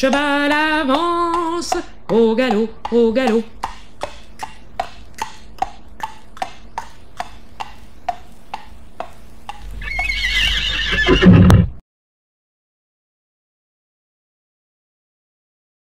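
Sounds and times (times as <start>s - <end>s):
horse hoofbeats trotting: 0.0s - 11.8s
horse neighing: 9.6s - 11.8s.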